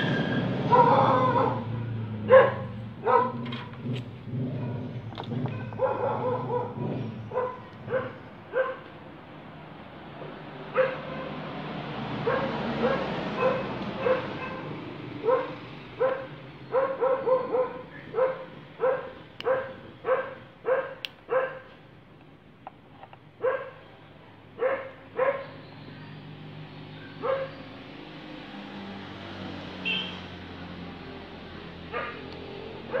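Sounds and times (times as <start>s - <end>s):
dog barking: 0.7s - 3.6s, 4.5s - 8.9s, 10.7s - 11.4s, 12.2s - 21.8s, 23.4s - 23.9s, 24.6s - 25.6s, 27.0s - 27.6s, 31.9s - 33.0s.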